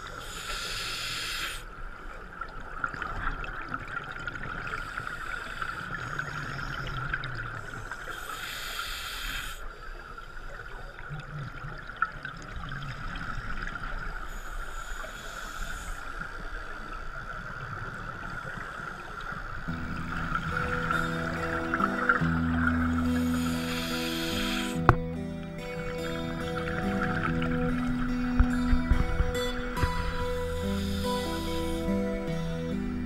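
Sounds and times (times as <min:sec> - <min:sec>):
exhaled bubbles underwater: 0:00.0 - 0:08.8, 0:09.4 - 0:33.0
steady high tone: 0:19.7 - 0:33.0.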